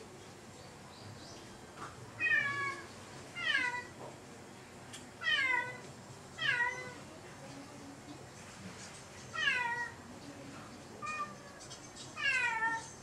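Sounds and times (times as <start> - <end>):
cat meowing: 2.2 - 3.9, 5.2 - 5.8, 6.4 - 7.0, 9.3 - 10.0, 12.2 - 12.9.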